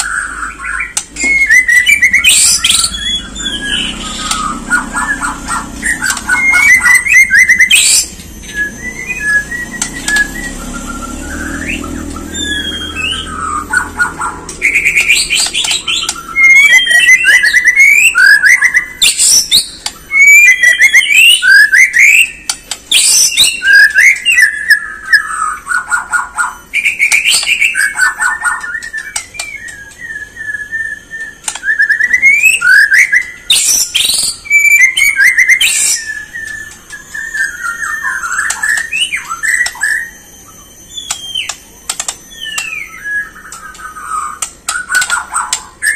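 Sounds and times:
bird singing whistled song: 0.0s - 45.9s
sharp clicks: 0.9s - 10.7s, 14.4s - 17.6s, 19.1s - 20.0s, 21.9s - 23.5s, 28.6s - 30.1s, 31.2s - 31.8s, 40.9s - 45.7s.

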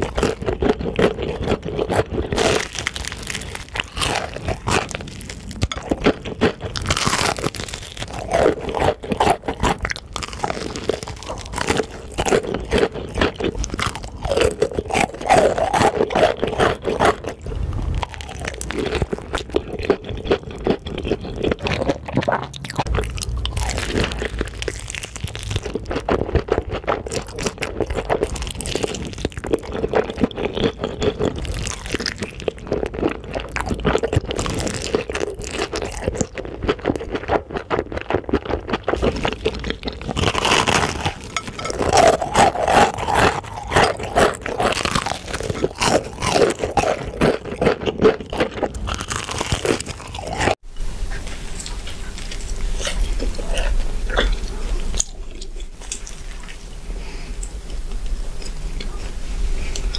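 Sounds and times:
crunching fried chicken: 0.0s - 50.6s
soft chewing of burger: 47.6s - 59.9s.

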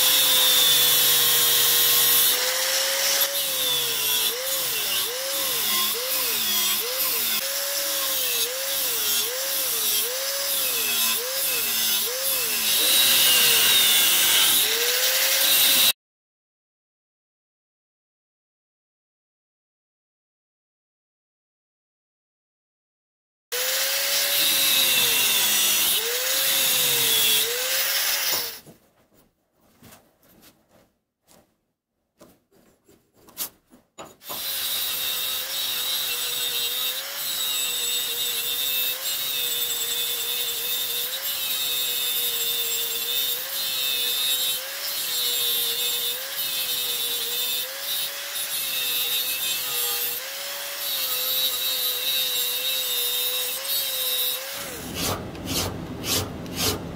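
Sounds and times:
angle grinder cutting metal: 0.0s - 16.0s, 23.6s - 28.6s, 34.2s - 56.9s.

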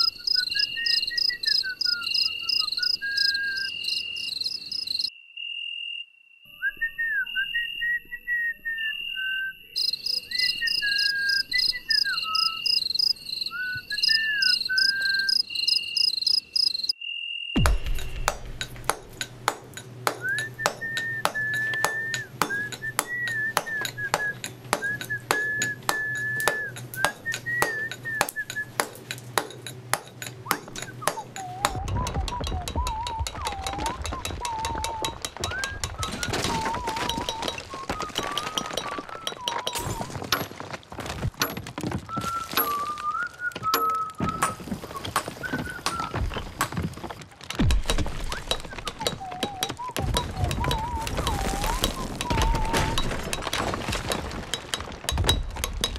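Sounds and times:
insect-like chirping: 0.0s - 6.6s, 8.9s - 18.3s
whistle-like melody: 0.0s - 16.2s, 20.1s - 29.0s, 30.4s - 40.2s, 42.1s - 46.5s, 48.2s - 53.4s
fast ticking beat: 17.6s - 36.2s.

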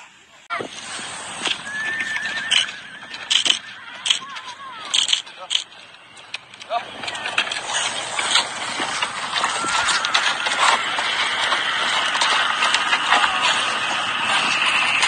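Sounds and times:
steady hiss: 0.0s - 15.0s
horse hooves on gravel: 0.6s - 15.0s.

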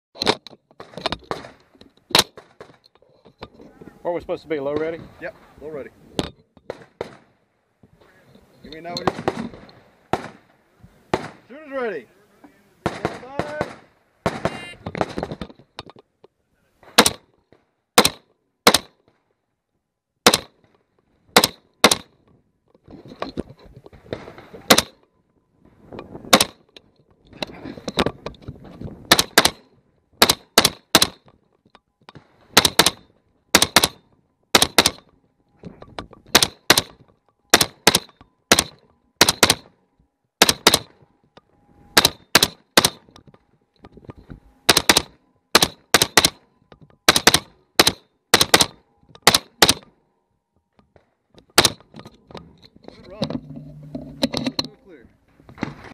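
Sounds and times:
rifle shots: 6.7s - 7.4s, 9.0s - 10.5s, 11.1s - 11.5s, 12.8s - 15.2s, 16.8s - 17.3s, 18.0s - 19.0s, 20.2s - 20.6s, 21.3s - 22.1s, 24.1s - 25.0s, 26.3s - 26.6s, 29.1s - 31.2s, 32.2s - 35.0s, 36.3s - 39.7s, 40.4s - 41.0s, 42.0s - 43.0s, 44.7s - 46.4s, 47.1s - 49.8s, 51.6s - 51.8s.

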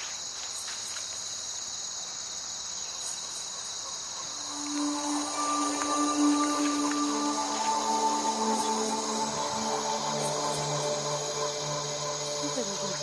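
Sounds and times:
insects chirring: 0.0s - 13.0s
soft music with held tones: 4.3s - 13.0s.

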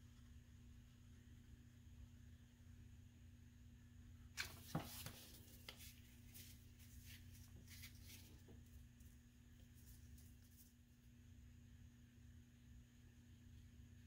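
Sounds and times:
faint steady hum: 0.0s - 14.0s
paper rustling: 4.4s - 10.9s.

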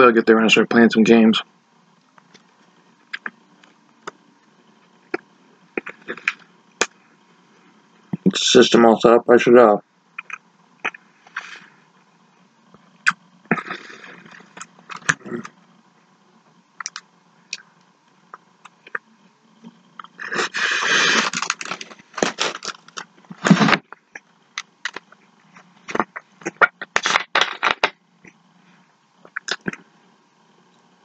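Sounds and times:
wet mouth clicks and smacks: 10.2s - 11.5s, 16.8s - 17.6s, 29.3s - 29.8s.

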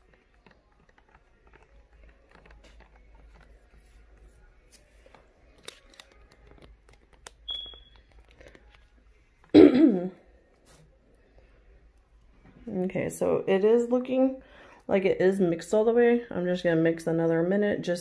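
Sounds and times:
high squeak: 7.5s - 8.0s.

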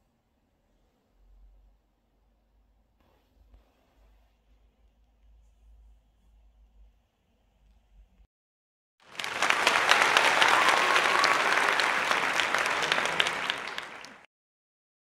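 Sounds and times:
crowd applauding: 9.0s - 14.3s.

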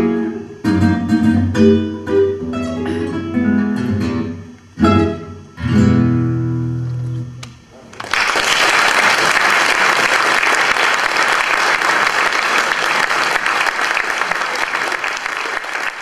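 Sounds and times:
guitar notes: 0.0s - 7.7s
audience applauding: 7.9s - 16.0s.

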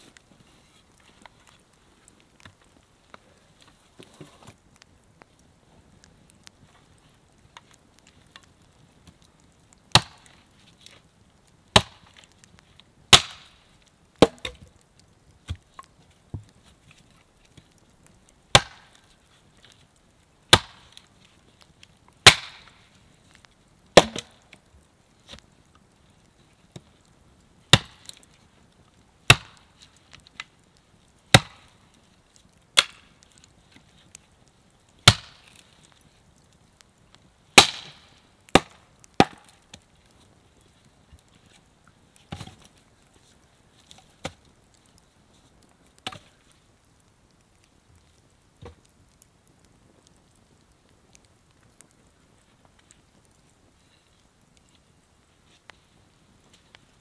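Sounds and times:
axe chopping into wood: 10.0s - 10.2s, 11.8s - 12.0s, 13.1s - 13.5s, 14.2s - 14.6s, 18.5s - 18.8s, 24.0s - 24.3s, 37.6s - 37.9s.

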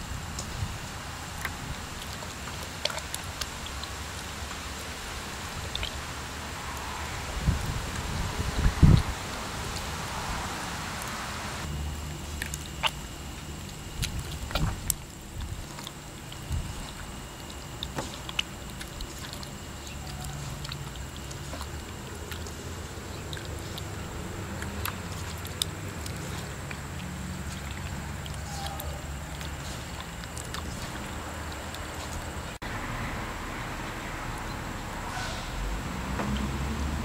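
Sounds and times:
steady low hum: 0.0s - 37.0s
small clicks and drips: 0.3s - 8.2s, 11.0s - 32.6s
wet dough squelching: 0.3s - 10.4s, 11.6s - 32.6s.

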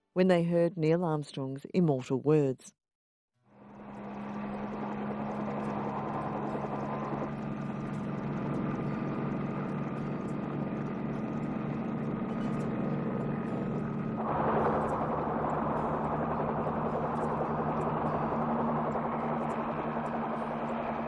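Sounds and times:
helicopter engine and rotor: 3.4s - 21.0s.

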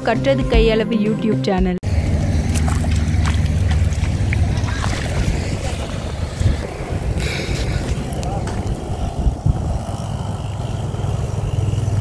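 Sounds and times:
steady low rumble: 1.8s - 12.0s
feet wading through water: 1.9s - 6.6s
wind buffeting microphone: 1.9s - 12.0s.

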